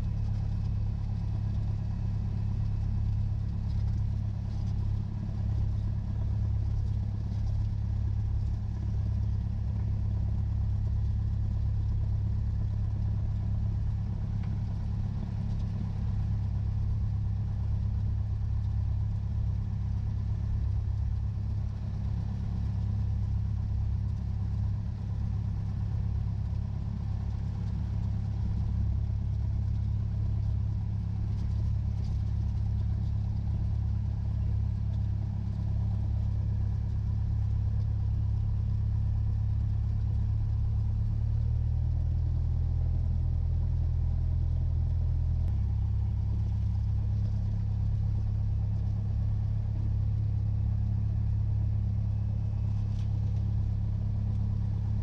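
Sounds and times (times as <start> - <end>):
propeller engine droning: 19.2 - 38.5, 45.5 - 55.0.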